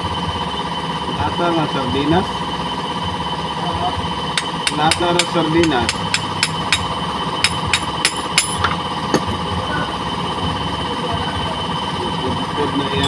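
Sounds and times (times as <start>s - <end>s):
hammer tapping metal: 4.4s - 9.3s.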